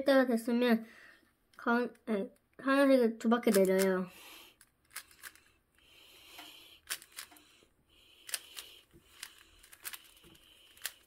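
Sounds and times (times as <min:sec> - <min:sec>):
puzzle cube clicking: 0:03.4 - 0:04.0, 0:04.6 - 0:05.5, 0:06.4 - 0:07.4, 0:08.2 - 0:11.0.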